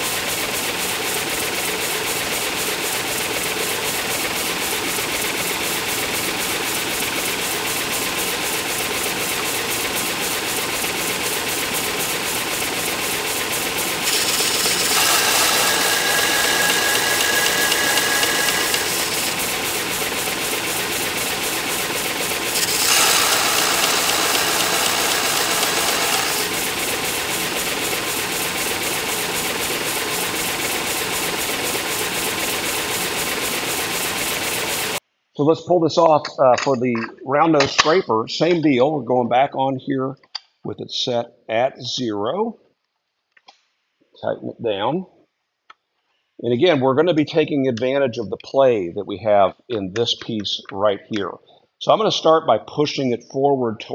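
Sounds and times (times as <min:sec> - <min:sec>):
belt sander running: 0:00.0 - 0:35.0
steel grinding hiss on sander: 0:14.1 - 0:19.4, 0:22.5 - 0:27.2.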